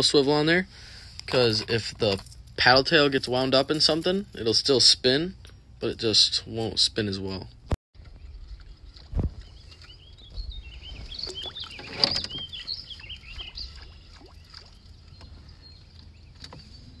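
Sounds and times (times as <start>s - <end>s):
birds chirping: 5.4s - 17.0s.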